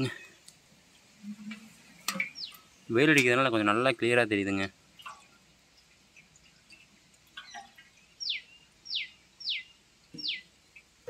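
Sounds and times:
bird chirping: 0:01.3 - 0:03.0, 0:05.0 - 0:11.0.

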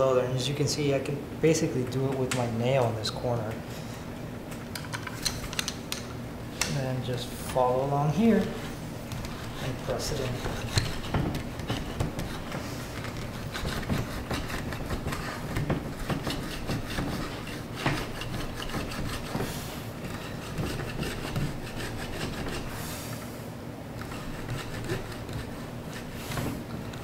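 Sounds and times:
spline roller scraping and clicking: 0:07.4 - 0:22.8, 0:24.0 - 0:27.0.

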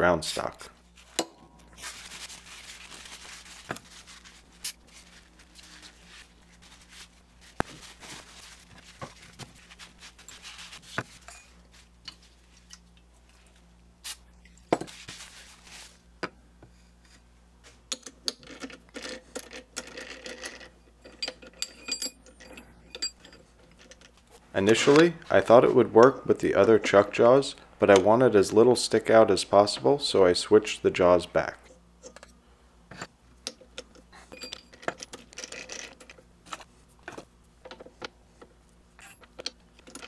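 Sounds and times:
paper towel rubbing and crumpling: 0:01.8 - 0:11.0, 0:14.9 - 0:16.0
metallic clinks and ringing taps: 0:21.0 - 0:23.4, 0:34.3 - 0:35.1.

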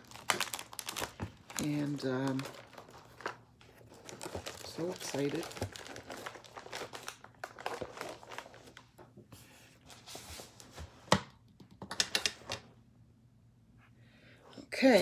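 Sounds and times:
paper rustling and crinkling: 0:00.0 - 0:11.1.

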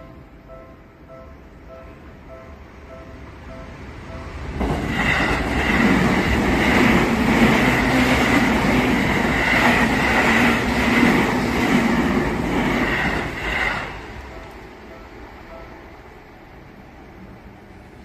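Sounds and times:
electric train passing: 0:00.0 - 0:18.0
train wheels on rails: 0:03.5 - 0:18.0.

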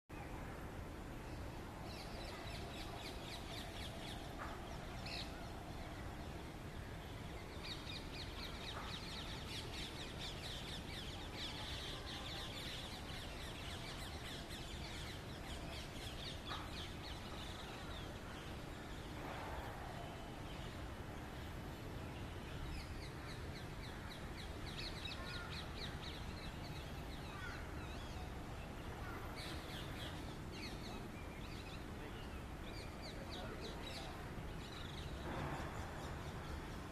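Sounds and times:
low outdoor hiss: 0:00.1 - 0:36.9
birds chattering and chirping: 0:01.3 - 0:36.9.

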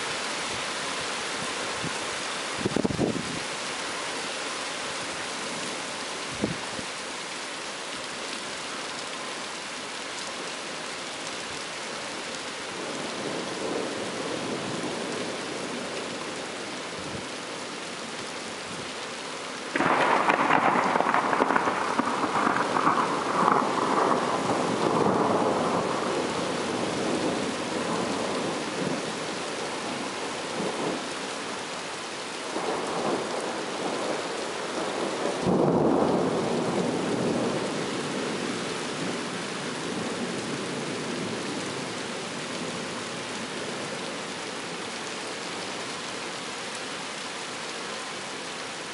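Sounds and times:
steady rain: 0:00.0 - 0:48.9
thunder rumbling: 0:19.7 - 0:29.0, 0:32.6 - 0:39.2.

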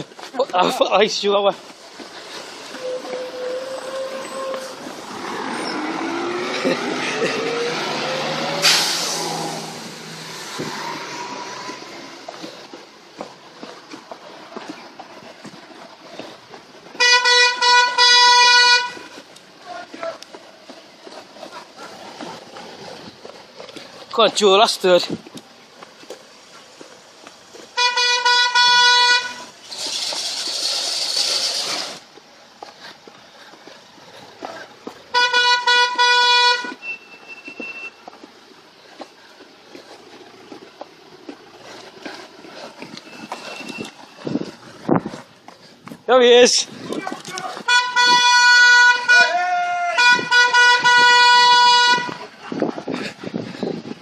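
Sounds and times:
bus engine pulling away: 0:00.0 - 0:17.0, 0:28.9 - 0:35.2, 0:36.5 - 0:45.8
street traffic: 0:00.0 - 0:54.0
car horn: 0:02.6 - 0:04.9, 0:16.9 - 0:19.2, 0:27.7 - 0:29.6, 0:35.1 - 0:38.0, 0:47.4 - 0:52.3
compressed air hiss: 0:08.6 - 0:10.8, 0:29.6 - 0:32.0.

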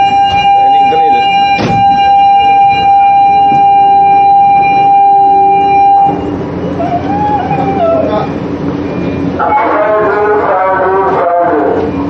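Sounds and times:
ship alarm steady high tone: 0:00.0 - 0:12.0
short bump: 0:01.6 - 0:02.1.

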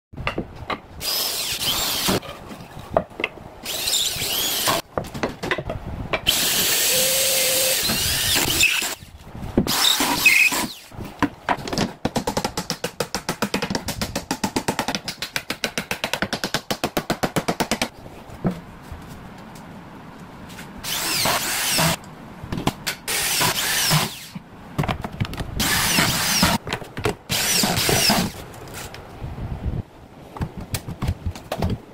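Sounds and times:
cordless drill driving screws: 0:01.0 - 0:02.2, 0:03.7 - 0:04.8, 0:06.3 - 0:09.0, 0:20.8 - 0:22.0, 0:25.6 - 0:26.6, 0:27.3 - 0:28.4.

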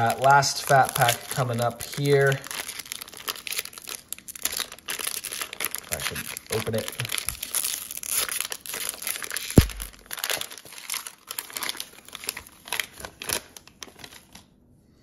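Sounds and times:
wrapper tearing and crinkling: 0:00.0 - 0:14.5
sharp knock: 0:09.6 - 0:10.0.

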